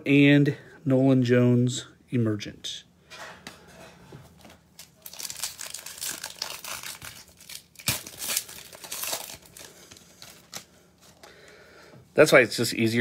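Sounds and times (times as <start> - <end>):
foil wrapper tearing and crinkling: 4.7 - 10.7.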